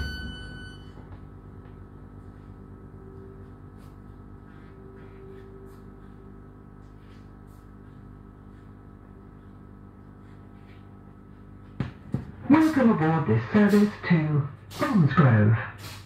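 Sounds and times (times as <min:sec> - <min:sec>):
high steady tone: 0:00.0 - 0:01.1
train electrical hum: 0:00.0 - 0:16.0.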